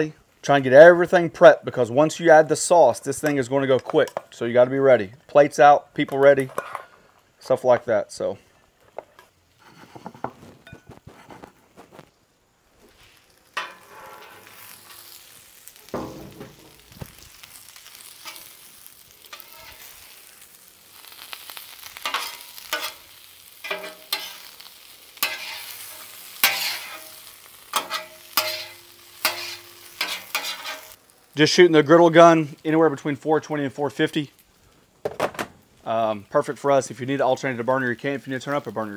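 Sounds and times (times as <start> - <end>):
food sizzling on a griddle: 6.8 - 38.9
metal spatula scraping and clacking: 13.6 - 15.1, 18.2 - 18.5, 19.2 - 19.9, 22.0 - 23.0, 23.6 - 24.6, 25.2 - 31.0.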